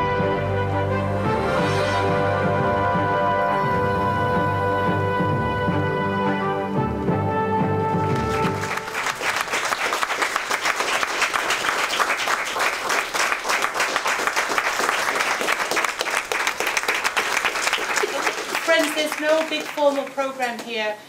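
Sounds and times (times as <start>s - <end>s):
theme music: 0.0s - 9.6s
people applauding: 7.9s - 20.8s.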